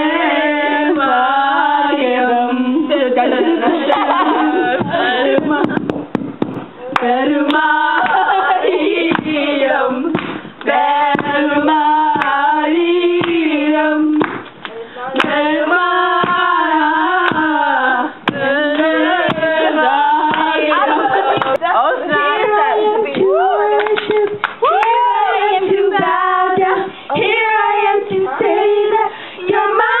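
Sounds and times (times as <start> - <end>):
women singing together: 0.0 - 30.0
hand claps: 4.8 - 8.2, 10.2 - 11.4, 12.2 - 12.4, 14.2 - 15.4, 20.3 - 20.5, 21.1 - 21.6, 23.8 - 25.0.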